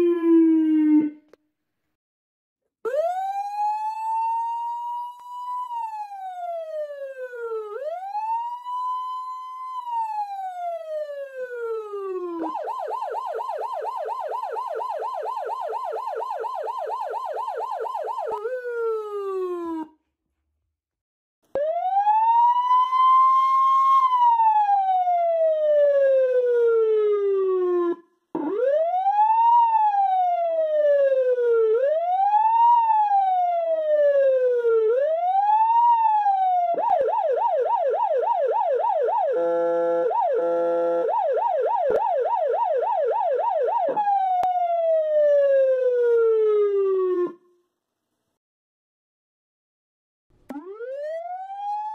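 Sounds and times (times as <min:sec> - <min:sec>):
electronic siren wailing: 0:00.0 - 0:01.3, 0:02.9 - 0:09.2, 0:09.8 - 0:19.9, 0:27.5 - 0:47.4, 0:50.5 - 0:51.9
siren yelp: 0:00.0 - 0:01.4, 0:02.9 - 0:20.0, 0:21.5 - 0:47.6, 0:50.5 - 0:51.9.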